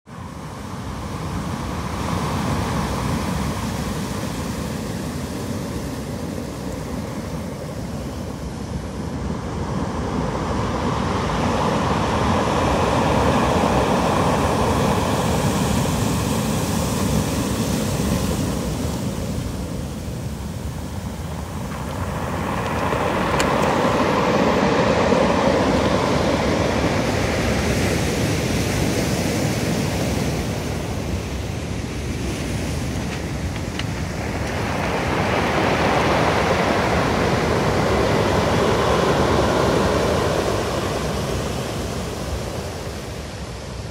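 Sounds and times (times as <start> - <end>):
surf washing over cobbles: 17.1 - 27.7, 31.9 - 40.6.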